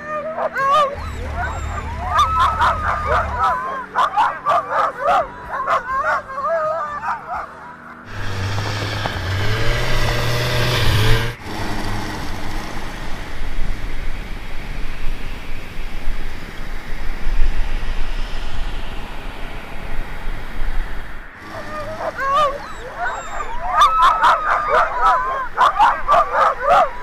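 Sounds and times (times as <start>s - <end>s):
dogs yipping and howling: 0.0s - 11.3s, 21.4s - 27.0s
snowmobile engine running: 0.7s - 5.9s, 7.7s - 15.2s, 21.4s - 27.0s
rushing noise: 1.0s - 4.7s, 8.1s - 26.1s.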